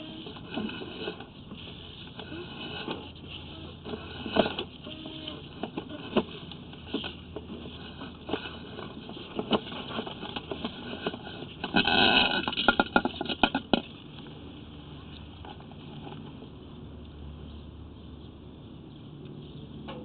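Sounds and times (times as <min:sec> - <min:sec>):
rapid clatter: 0:00.0 - 0:14.2.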